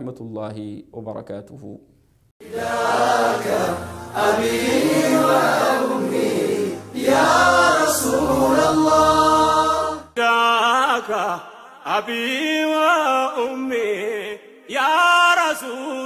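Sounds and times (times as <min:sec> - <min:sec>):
voices chanting: 0:02.4 - 0:10.2.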